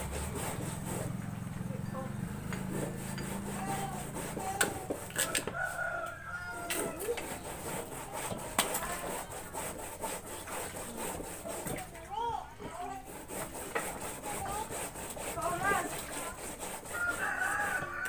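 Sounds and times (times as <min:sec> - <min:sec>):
hand grating on wooden grater: 0:00.0 - 0:18.0
chickens clucking: 0:03.3 - 0:07.9
rooster crowing: 0:05.1 - 0:07.2, 0:16.9 - 0:18.0.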